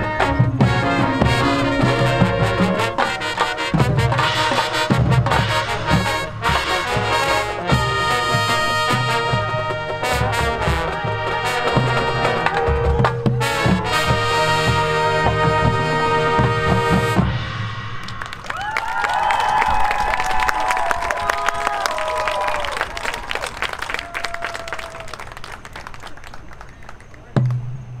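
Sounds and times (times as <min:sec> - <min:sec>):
sharp percussion hits: 0:00.0 - 0:18.5
marching band playing: 0:00.0 - 0:18.7.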